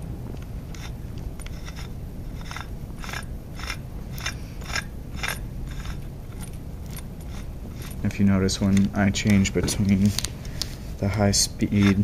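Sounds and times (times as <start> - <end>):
gearbox motor humming: 0.0 - 8.8.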